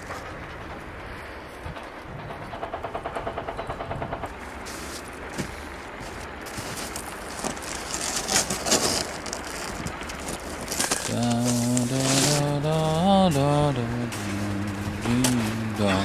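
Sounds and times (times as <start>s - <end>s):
steady outdoor hiss: 0.0s - 16.0s
footsteps crunching in snow: 4.6s - 15.6s
cardboard box rustling and knocking: 4.7s - 12.4s.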